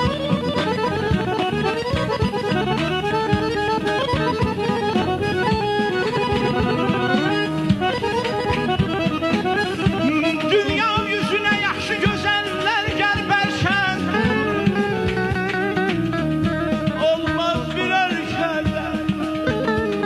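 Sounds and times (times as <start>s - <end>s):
fast ornamented melody: 0.0s - 20.0s
steady drum beats: 0.0s - 20.0s.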